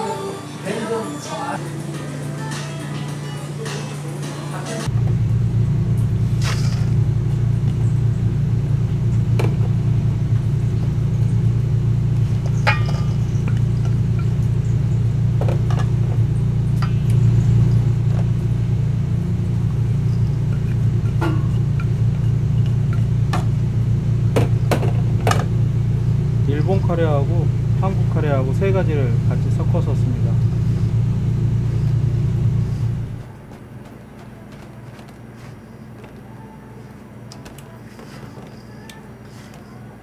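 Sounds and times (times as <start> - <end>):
kitchen equipment rumbling: 4.8 - 36.4
utensils clinking: 12.4 - 14.6.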